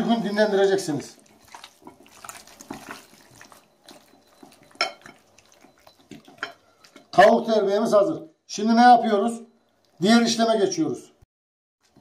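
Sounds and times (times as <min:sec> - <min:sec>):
raw chicken squelching in marinade: 0:00.3 - 0:07.2.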